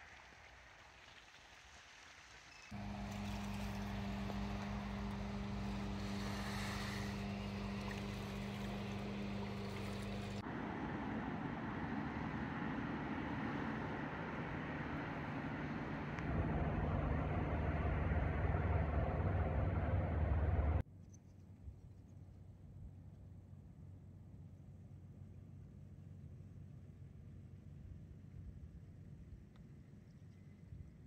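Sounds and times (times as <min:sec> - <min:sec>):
boat engine running: 0:02.8 - 0:20.8.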